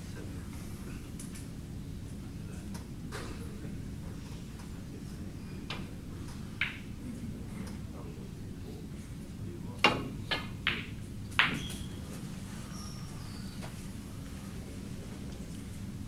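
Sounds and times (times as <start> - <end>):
cue striking ball: 6.6 - 6.9, 9.8 - 11.9
snooker balls clacking: 6.6 - 6.9, 9.8 - 11.7.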